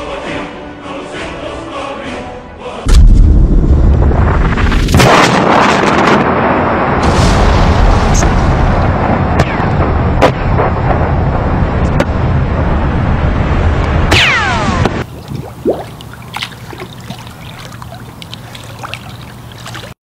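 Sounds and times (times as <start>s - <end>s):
explosion rumble: 2.9s - 14.1s
sharp cracks of blasts: 4.2s - 12.3s.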